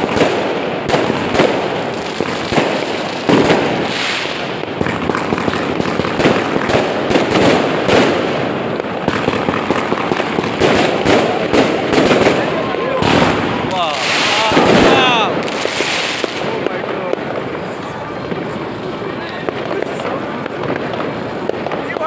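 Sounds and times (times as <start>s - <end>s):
fireworks bangs and crackles: 0.0s - 22.0s.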